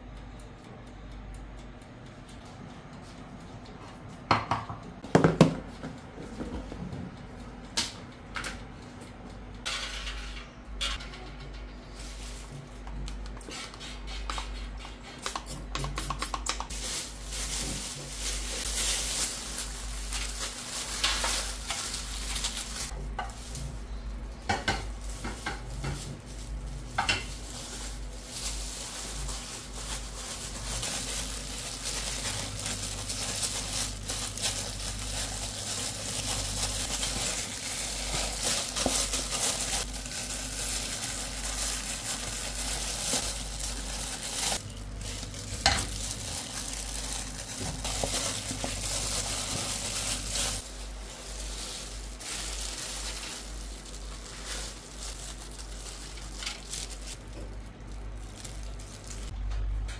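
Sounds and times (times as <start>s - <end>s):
plastic gloves crinkling: 11.8s - 13.8s, 14.4s - 59.4s
wet squishing and rubbing: 25.0s - 57.2s.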